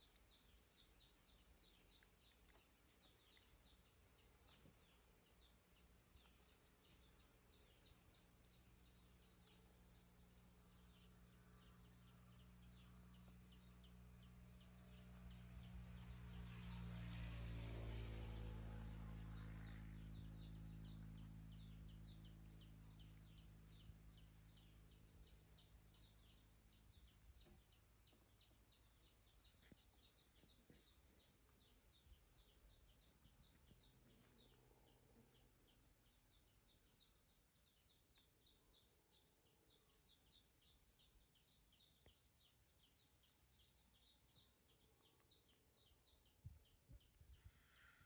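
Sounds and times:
low hum: 6.4 - 35.7.

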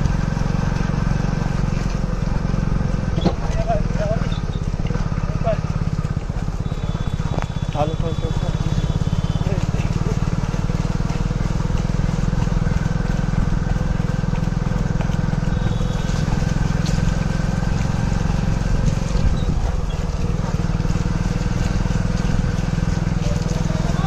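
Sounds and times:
vehicle engine running steadily: 0.0 - 24.0.

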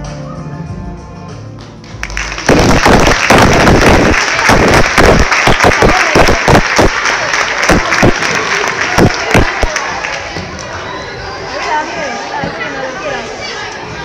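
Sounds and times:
music: 0.0 - 2.5
audience applauding: 1.8 - 10.3.

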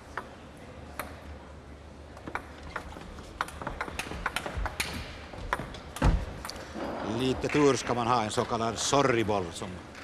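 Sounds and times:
low hall hum: 0.0 - 10.0.

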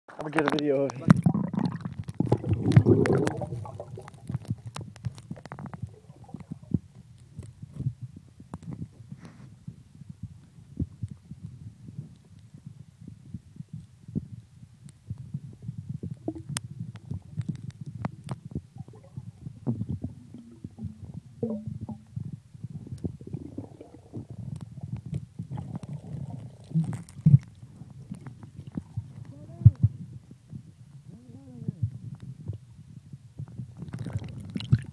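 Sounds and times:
underwater sharp clicks: 0.3 - 7.8, 16.1 - 22.2
underwater rush of water: 0.4 - 6.7, 22.8 - 29.3
low underwater rumbling: 0.4 - 34.9
underwater low knocks: 15.9 - 32.6
clicks and knocks against camera: 16.0 - 19.0.

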